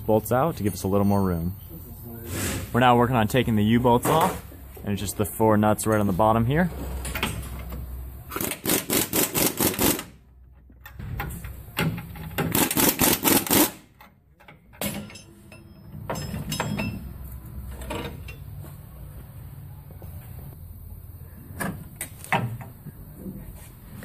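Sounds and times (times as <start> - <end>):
metal clanks and taps: 14.0 - 18.6.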